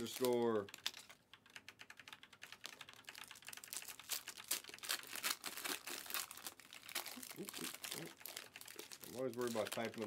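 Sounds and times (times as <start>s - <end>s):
keyboard typing: 0.0s - 5.2s.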